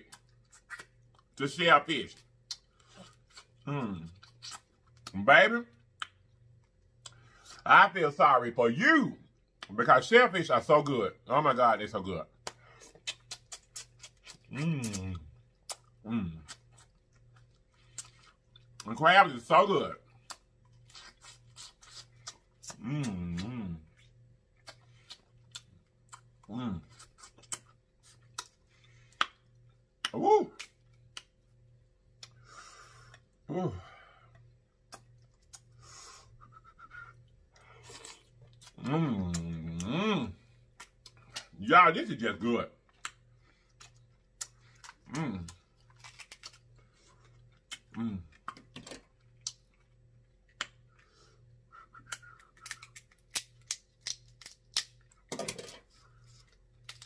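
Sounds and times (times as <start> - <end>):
wet lip-smacking while chewing: 0.0 - 1.4, 2.2 - 5.2, 12.4 - 18.9, 20.1 - 31.5, 32.1 - 32.4, 34.3 - 39.9, 51.7 - 55.2
person humming mm: 14.5 - 15.3, 22.7 - 23.9, 38.8 - 40.3, 47.9 - 48.4.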